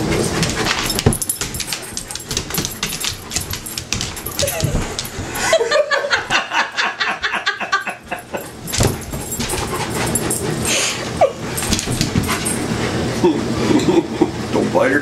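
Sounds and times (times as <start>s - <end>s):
dog claws on hardwood floor: 0.0s - 5.4s, 8.5s - 10.6s, 11.6s - 12.7s.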